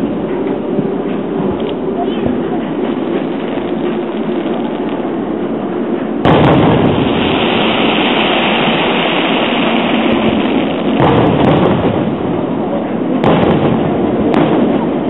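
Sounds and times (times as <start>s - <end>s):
steady background noise: 0.0s - 15.0s
firework shell boom: 6.2s - 12.4s.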